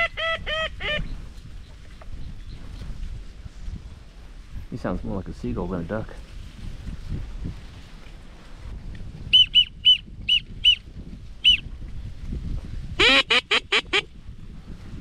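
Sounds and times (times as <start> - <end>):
duck call quacking notes: 0.0 - 1.0, 13.0 - 14.1
duck call peeps: 0.0 - 1.1, 13.0 - 14.1.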